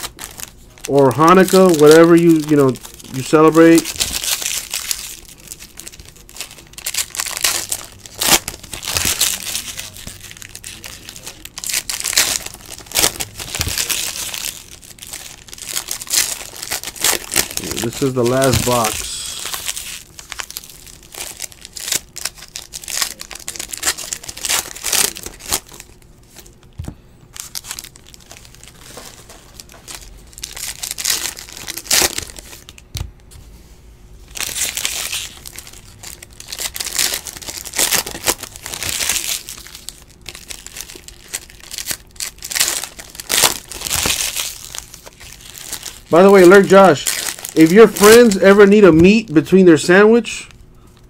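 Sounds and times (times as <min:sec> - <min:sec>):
foil wrappers crinkling and tearing: 0:00.0 - 0:33.1, 0:34.3 - 0:51.0
cards shuffled and flicked: 0:17.6 - 0:19.4.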